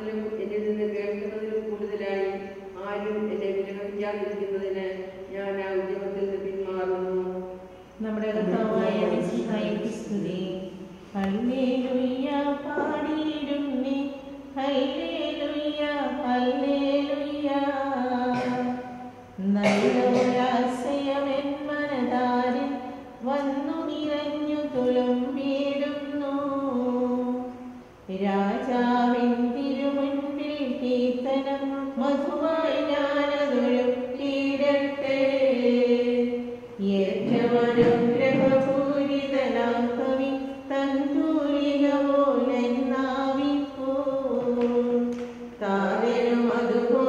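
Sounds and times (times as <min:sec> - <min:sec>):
voices singing slow chant: 0:07.4 - 0:12.0, 0:18.2 - 0:20.4, 0:31.6 - 0:47.0
person singing a slow chant: 0:08.3 - 0:11.8.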